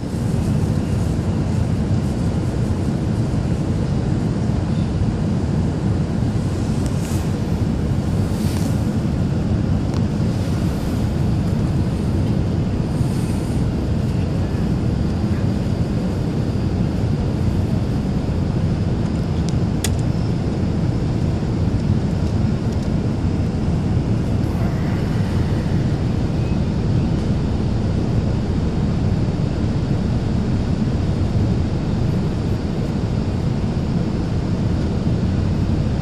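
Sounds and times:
aircraft engines rumbling in cabin: 0:00.0 - 0:36.0
rushing airflow: 0:00.0 - 0:36.0.

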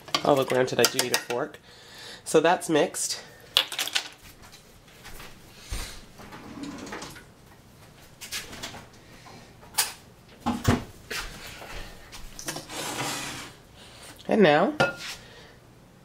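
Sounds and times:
kitchen items knocking and clicking: 0:00.0 - 0:01.4, 0:03.6 - 0:04.2.

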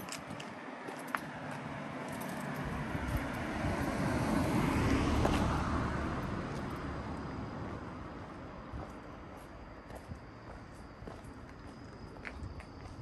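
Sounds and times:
car passing by: 0:00.7 - 0:08.8.

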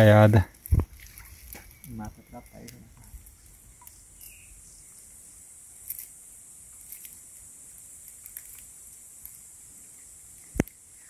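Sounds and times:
steady high hiss: 0:00.0 - 0:11.0
small clicks: 0:05.8 - 0:06.2, 0:06.8 - 0:07.2, 0:08.0 - 0:09.4, 0:10.4 - 0:10.8.

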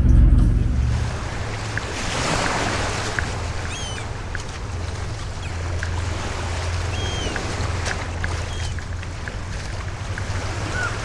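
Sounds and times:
steady low rumble: 0:00.0 - 0:05.3
waves lapping on sand: 0:01.1 - 0:11.0.

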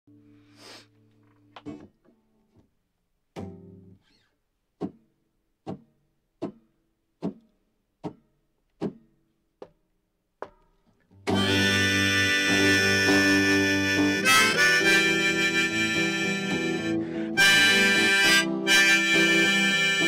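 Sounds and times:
plucked chords: 0:03.4 - 0:04.0, 0:11.3 - 0:20.0.

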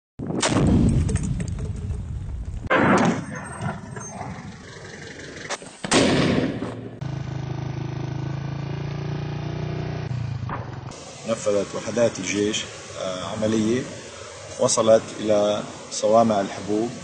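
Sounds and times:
heavy weapons fire blasts: 0:00.2 - 0:01.4, 0:02.7 - 0:03.9, 0:05.8 - 0:07.0.

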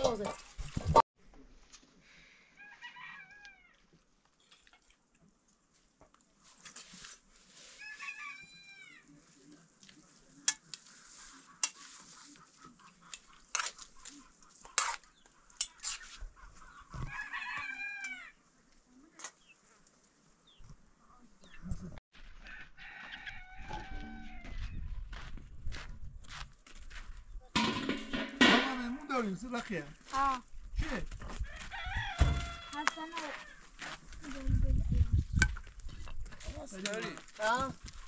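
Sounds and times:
rooster crowing: 0:02.6 - 0:03.8, 0:07.8 - 0:09.0, 0:17.0 - 0:18.4, 0:22.4 - 0:24.8, 0:31.4 - 0:33.5.

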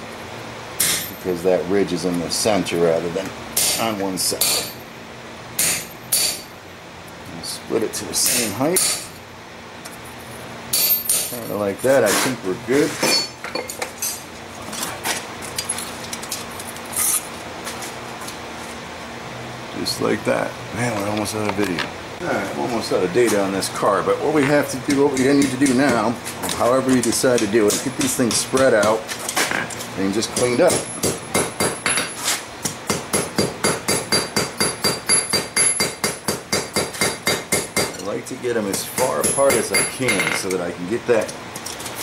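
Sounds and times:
hammer striking steel on anvil: 0:00.8 - 0:01.2, 0:03.6 - 0:04.8, 0:05.6 - 0:06.5, 0:08.2 - 0:09.2, 0:10.7 - 0:11.5, 0:30.4 - 0:38.1, 0:38.7 - 0:40.5
steel clanking on an anvil: 0:00.8 - 0:01.2, 0:03.6 - 0:04.8, 0:05.6 - 0:06.5, 0:08.2 - 0:09.2, 0:10.7 - 0:11.6, 0:13.0 - 0:14.2, 0:38.7 - 0:40.6.

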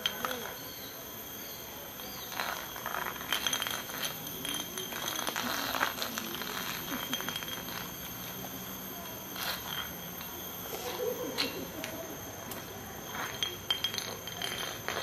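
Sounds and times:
glass lightbulb scraping on concrete: 0:02.0 - 0:11.7, 0:12.5 - 0:15.0.

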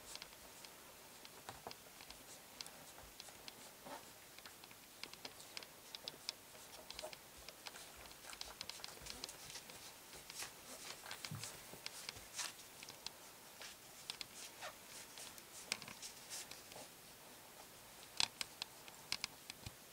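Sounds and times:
puppies scratching on fabric mat: 0:00.0 - 0:17.8.

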